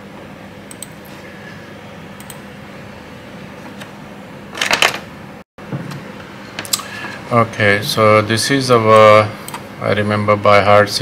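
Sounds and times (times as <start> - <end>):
computer mouse clicking: 2.2 - 2.4.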